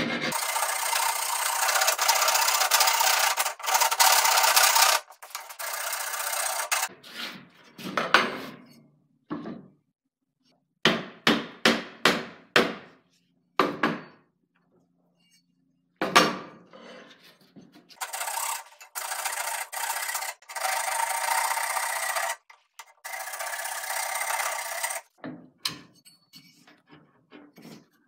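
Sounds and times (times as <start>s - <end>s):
file scraping wood: 0.0s - 7.4s.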